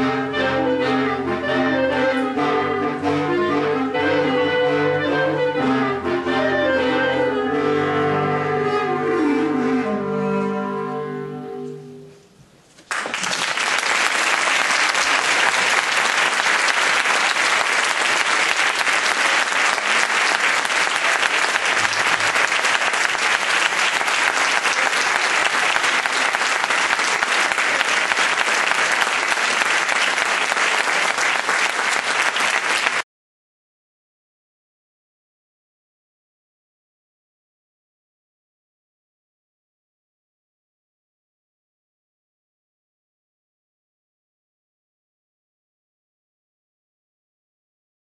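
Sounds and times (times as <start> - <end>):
audience applause: 12.8 - 33.0.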